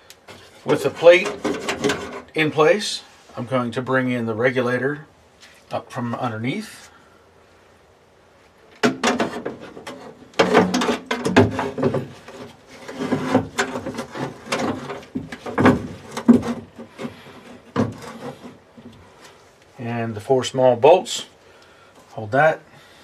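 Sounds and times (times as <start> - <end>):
metal clunks and scraping rattles: 0.3 - 2.4, 8.7 - 19.4.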